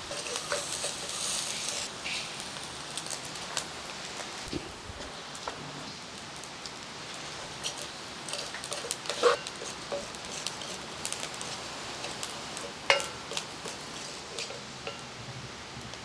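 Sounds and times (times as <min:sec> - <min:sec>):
spices crackling in a pan: 0:00.0 - 0:16.0
metal spatula clinking on pan: 0:12.0 - 0:15.1.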